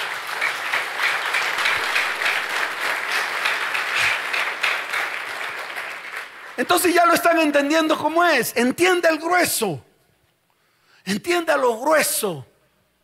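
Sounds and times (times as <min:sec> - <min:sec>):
crowd applauding: 0:00.0 - 0:07.5.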